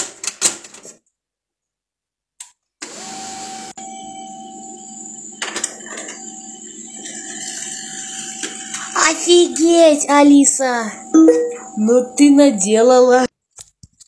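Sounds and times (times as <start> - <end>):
printer whine: 2.8 - 13.3
printer mechanism humming: 3.8 - 13.2.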